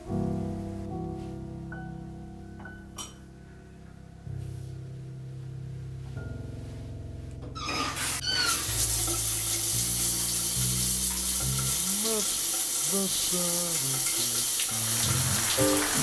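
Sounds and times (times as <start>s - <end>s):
shower valve squeaking: 7.6s - 16.0s
shower spray hissing: 8.0s - 16.0s.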